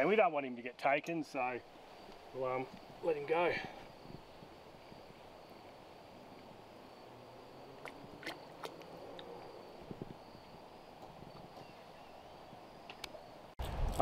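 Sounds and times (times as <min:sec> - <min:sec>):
light water splashing: 0:07.7 - 0:09.4.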